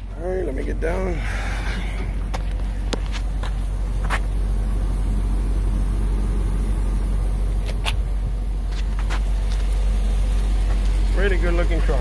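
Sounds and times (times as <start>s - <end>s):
truck engine idling: 0.0s - 12.0s.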